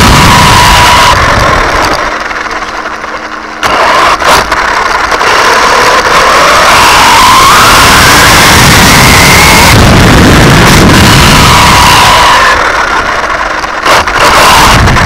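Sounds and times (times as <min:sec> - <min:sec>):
electric motor whining: 0:00.0 - 0:15.0
rolling and chassis noise: 0:00.0 - 0:15.0
sharp jolts: 0:03.6 - 0:15.0.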